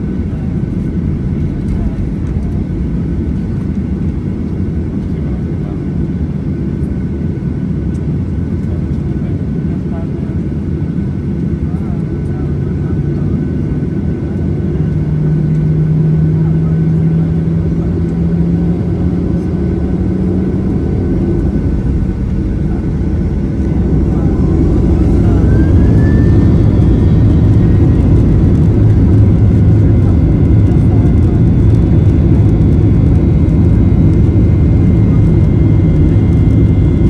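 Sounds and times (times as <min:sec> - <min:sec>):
jet engine rumble in cabin: 0:00.0 - 0:37.0
jet engine whine: 0:00.0 - 0:37.0.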